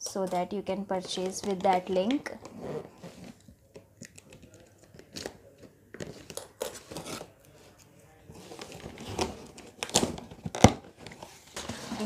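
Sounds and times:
cardboard box rustling and crinkling: 8.4 - 12.0.

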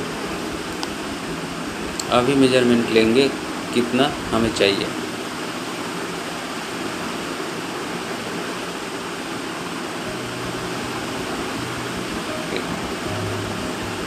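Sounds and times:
steady hissing noise: 0.0 - 14.0
faint low tones: 10.1 - 14.0.

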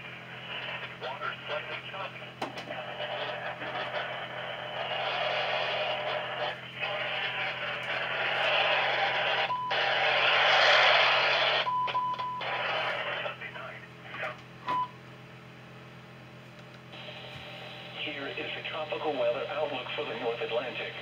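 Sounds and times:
radio static hiss: 0.0 - 14.6, 16.8 - 21.0
low hum: 0.0 - 21.0
faint broadcast audio: 0.4 - 9.9, 12.4 - 14.4, 17.0 - 21.0.

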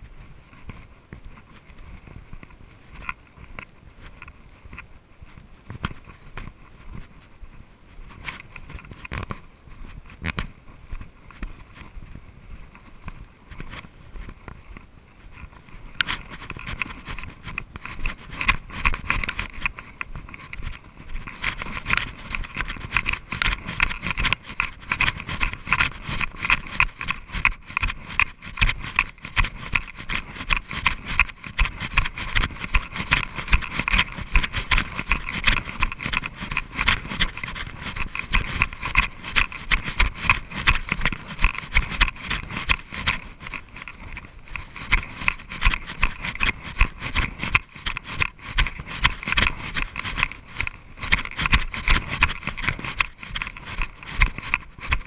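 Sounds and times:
running footsteps on dirt trail: 0.0 - 55.0
camera rattling in mount: 8.2 - 9.4, 12.7 - 55.0.

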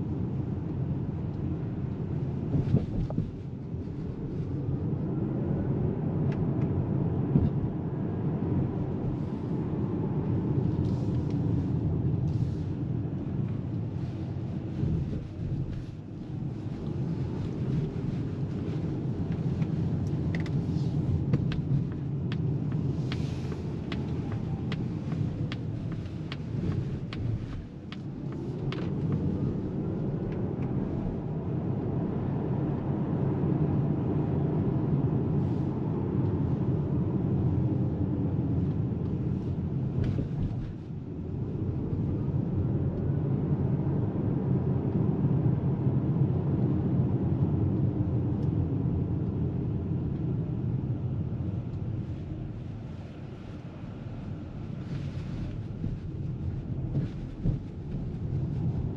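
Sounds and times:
tyre and road rumble: 6.8 - 32.6, 51.1 - 58.9.

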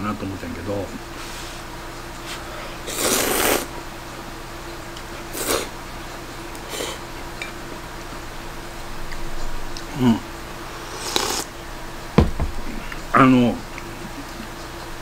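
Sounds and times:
person slurping noodles: 2.9 - 3.7, 5.3 - 5.7, 10.8 - 11.5.

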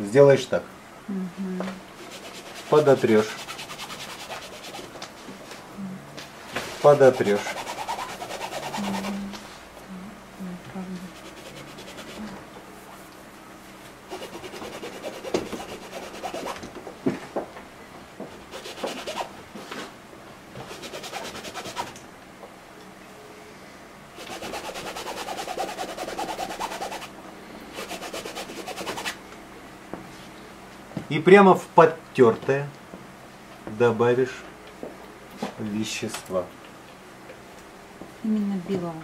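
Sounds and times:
fingertips rubbing wet paint: 2.1 - 5.1, 6.7 - 9.4, 11.1 - 13.1, 14.1 - 16.6, 18.4 - 19.3, 20.6 - 22.0, 24.2 - 27.1, 27.7 - 29.2.

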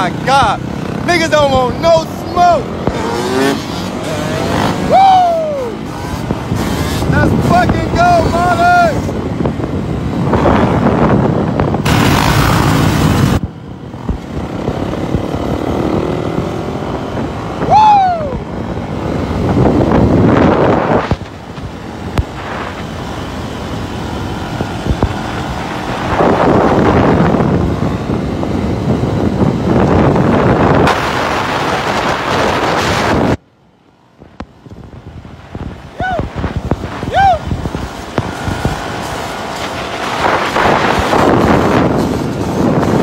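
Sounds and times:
dirt bike engine running: 0.0 - 5.0, 5.6 - 17.7, 36.3 - 43.0
wind buffeting microphone: 0.0 - 33.4, 34.1 - 43.0
road noise: 0.0 - 43.0.

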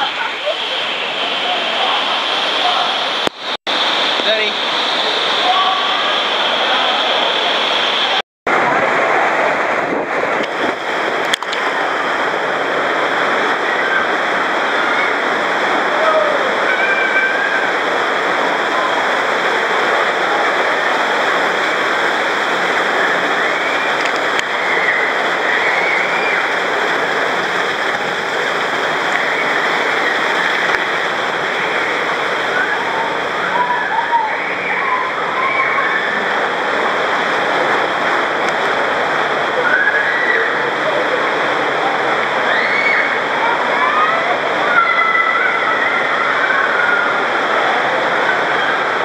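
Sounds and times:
water rushing down a slide: 0.0 - 49.0
faint shouts: 15.9 - 17.7.

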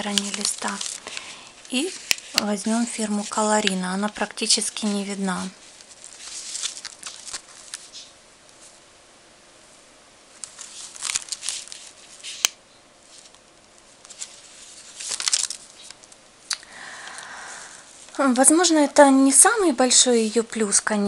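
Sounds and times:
notebook pages turning: 0.0 - 4.0, 5.8 - 8.1, 10.4 - 13.4, 14.0 - 16.1.

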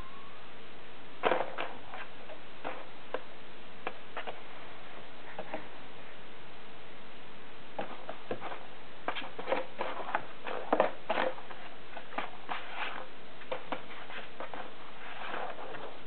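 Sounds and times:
kitten scratching in cardboard box: 7.8 - 16.0.

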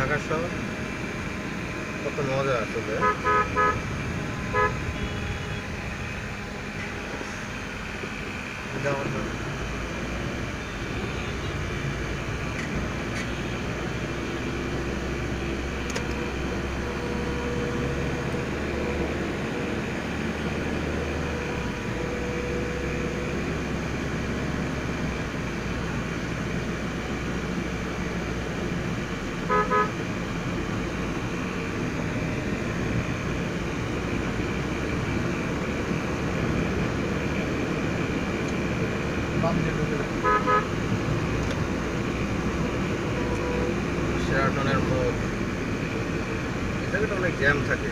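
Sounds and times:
car engine and road noise: 0.0 - 47.9
car horn beeping: 2.9 - 5.8, 10.6 - 11.7, 29.4 - 30.0, 40.2 - 40.8.

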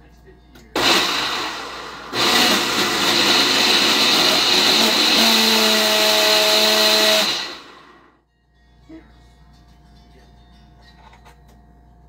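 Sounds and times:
blender running: 0.8 - 8.1.

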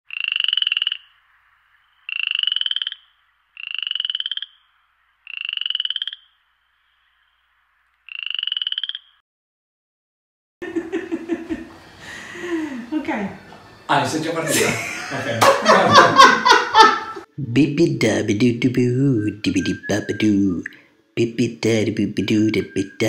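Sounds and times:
frog croaking: 0.1 - 9.2.

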